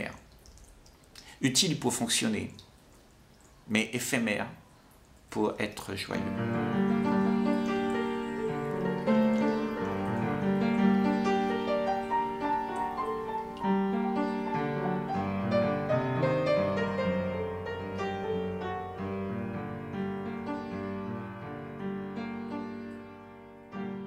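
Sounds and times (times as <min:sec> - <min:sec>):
slow piano music: 0:06.2 - 0:24.0.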